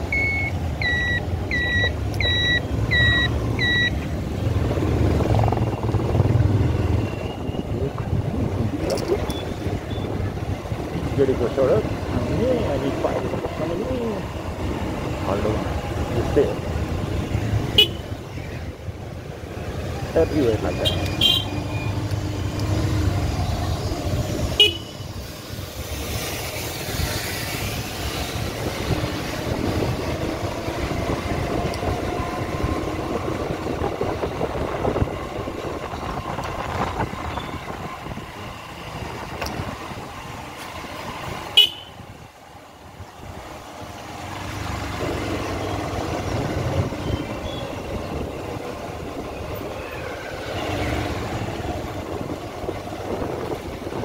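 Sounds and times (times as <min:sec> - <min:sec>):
running engines: 0:00.0 - 0:54.0
vehicle horns honking: 0:17.6 - 0:18.2, 0:20.7 - 0:21.9, 0:24.5 - 0:25.2, 0:41.5 - 0:42.0.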